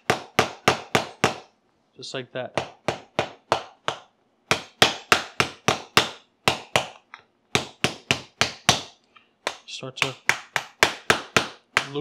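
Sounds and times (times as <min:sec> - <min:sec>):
knife tapping lobster shell: 0:09.5 - 0:12.0.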